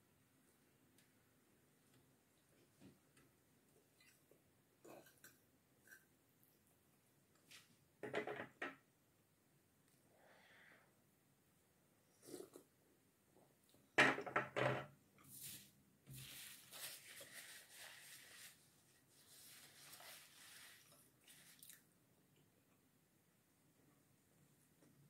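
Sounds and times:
paper napkin rustling: 15.3s - 21.6s.

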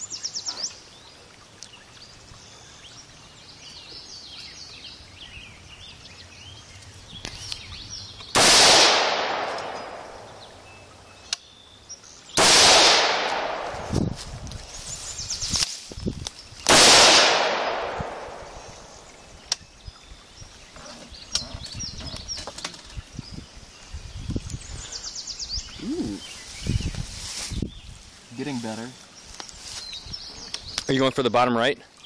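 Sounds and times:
rifle shots with long echo: 8.4s - 10.6s, 12.4s - 14.0s, 16.7s - 19.0s
birds chirping faintly: 9.4s - 12.4s, 18.1s - 32.0s.

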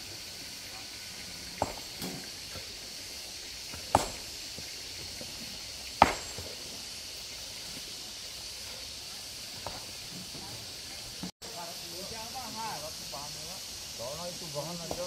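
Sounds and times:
steady high hiss: 0.0s - 15.0s
sharp knocks: 1.6s - 2.2s, 3.7s - 4.3s, 6.0s - 6.5s.

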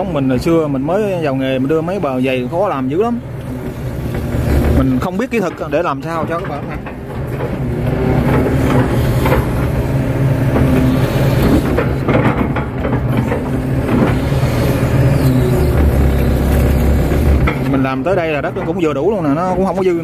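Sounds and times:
excavator diesel engine running: 0.0s - 20.0s
hydraulics driving bucket: 0.0s - 20.0s.

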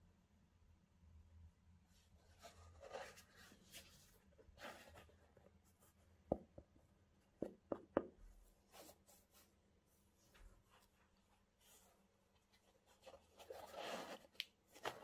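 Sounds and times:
gloves rubbing and rustling: 8.2s - 15.0s.

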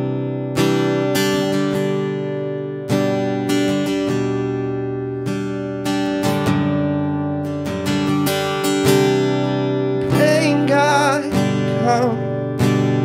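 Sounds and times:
acoustic guitar strumming: 0.0s - 13.0s
man singing: 10.0s - 12.4s.

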